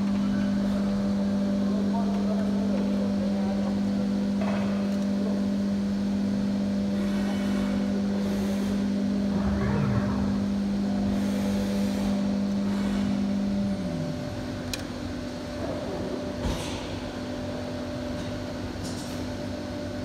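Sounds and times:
machine hum: 0:07.9 - 0:16.4.

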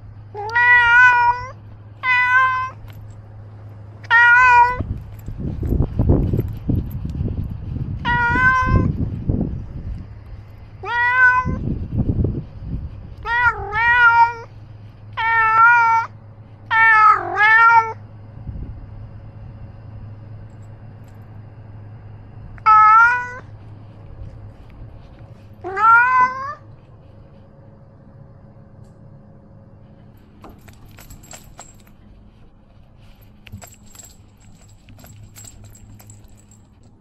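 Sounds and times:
cat meowing: 0:00.4 - 0:02.8, 0:04.0 - 0:04.9, 0:08.0 - 0:08.9, 0:10.8 - 0:11.6, 0:13.2 - 0:14.5, 0:15.2 - 0:18.0, 0:22.6 - 0:23.5, 0:25.6 - 0:26.7.

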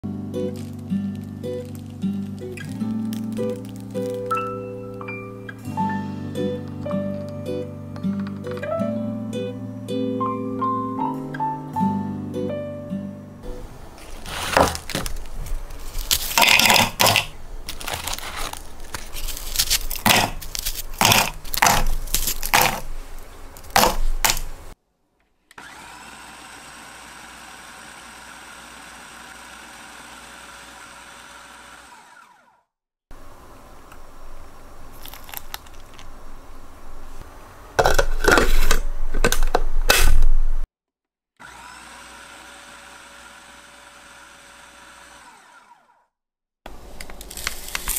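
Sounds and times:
food processor crunching biscuits: 0:00.5 - 0:04.4, 0:14.0 - 0:24.6, 0:25.5 - 0:32.7, 0:34.9 - 0:36.1, 0:41.4 - 0:46.1, 0:47.0 - 0:47.9
food processor motor hum: 0:13.6 - 0:22.8, 0:25.5 - 0:32.7, 0:41.4 - 0:46.1.

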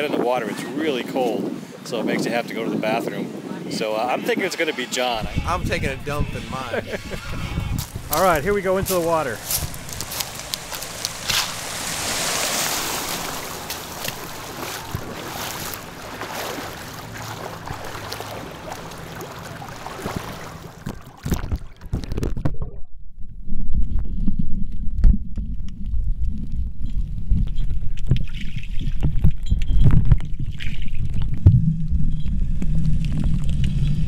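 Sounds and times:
wind on microphone: 0:00.0 - 0:18.8, 0:23.3 - 0:34.0
sea water splashing: 0:02.8 - 0:22.5
dull underwater thuds: 0:07.8 - 0:22.7
muffled underwater rumble: 0:17.4 - 0:34.0.

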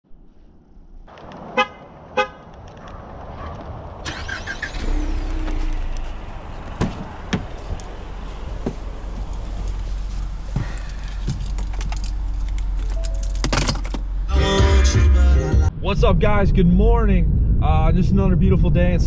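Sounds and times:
car horn chirps: 0:01.6 - 0:02.5
keys jingling: 0:10.6 - 0:14.1
wind rumble on microphone: 0:15.8 - 0:19.0.

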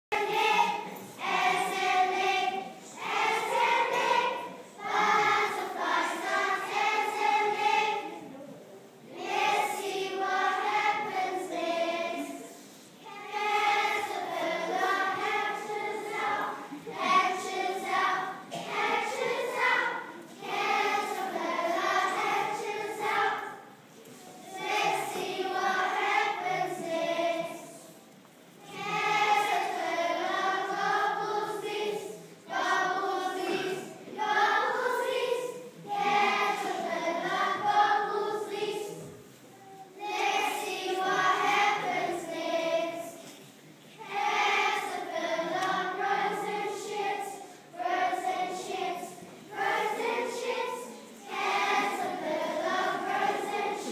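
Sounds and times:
children singing together: 0:00.1 - 0:08.3, 0:09.0 - 0:28.0, 0:28.6 - 0:53.9.

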